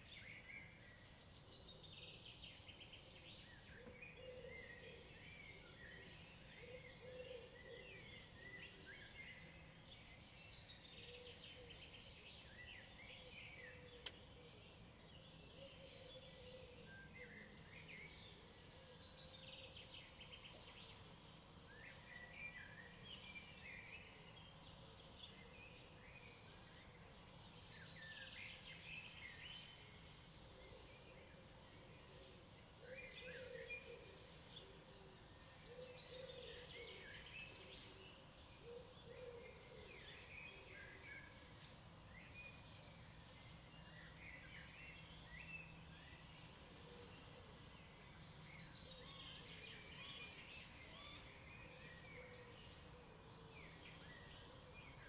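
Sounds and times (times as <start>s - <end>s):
songbirds chirping and singing: 0.0s - 55.0s.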